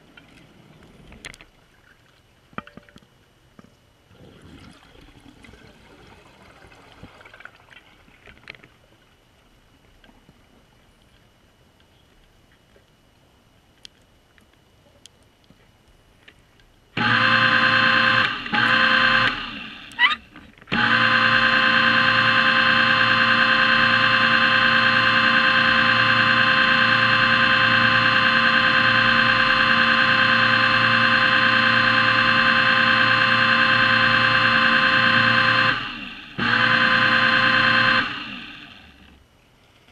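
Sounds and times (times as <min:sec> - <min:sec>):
underwater scooter motor whine: 0:17.0 - 0:39.3.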